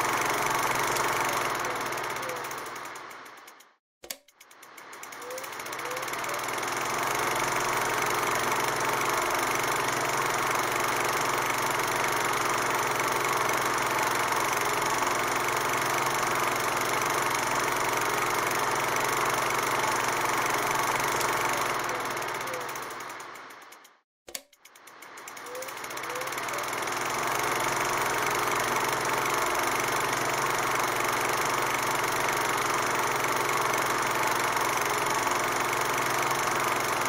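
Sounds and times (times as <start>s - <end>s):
film projector running: 0.0s - 37.0s.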